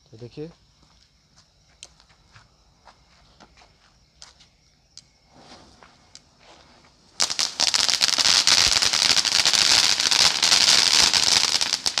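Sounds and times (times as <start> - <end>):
faint hiss: 4.8 - 12.0
firework fountain crackling: 6.6 - 12.0.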